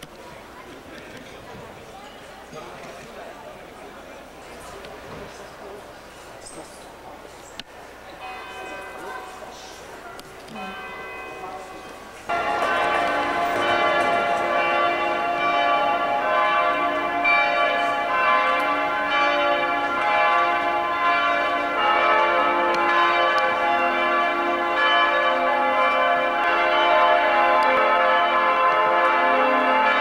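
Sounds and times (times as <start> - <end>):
church bells ringing: 7.9 - 30.0.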